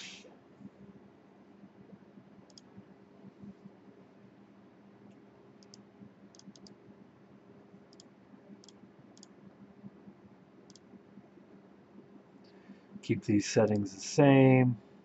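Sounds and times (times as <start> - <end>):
low steady hum: 0.0 - 15.0
computer mouse clicks: 2.5 - 2.7, 5.6 - 6.8, 7.9 - 9.4, 10.7 - 10.9.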